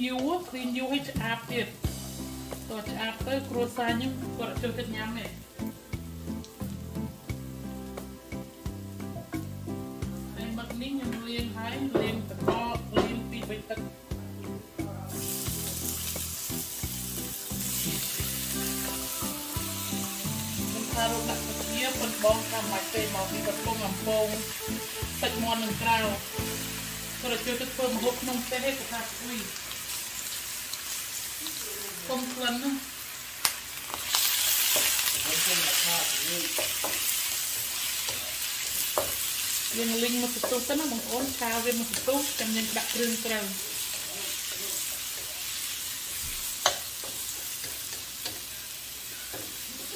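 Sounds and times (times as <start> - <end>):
background music: 0.0 - 31.0
food sizzling in a pan: 0.0 - 49.9.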